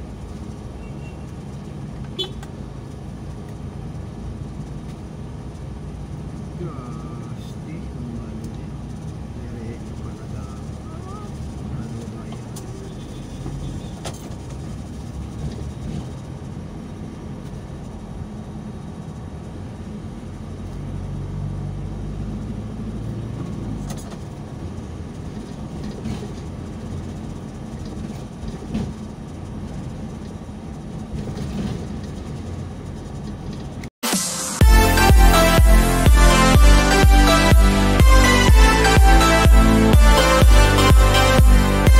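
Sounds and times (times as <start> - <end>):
engine and road rumble: 0.0 - 41.9
electronic music: 34.0 - 41.9.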